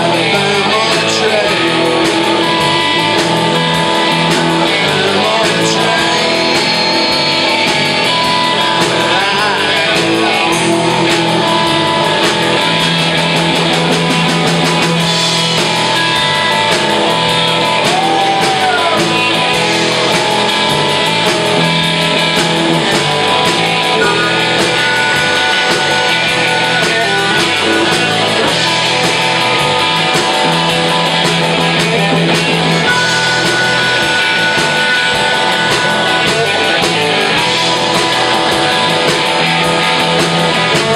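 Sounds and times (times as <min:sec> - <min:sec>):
live blues-rock band playing: 0:00.0 - 0:40.9.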